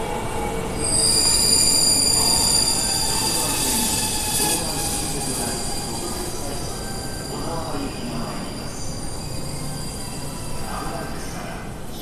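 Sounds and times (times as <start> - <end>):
train wheels rumbling on track: 0.0 - 11.8
high squeal of brakes: 0.8 - 11.1.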